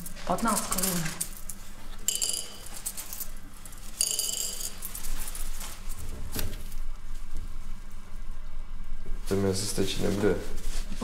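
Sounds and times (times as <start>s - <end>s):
coins clinking onto saucer: 0.0s - 5.5s.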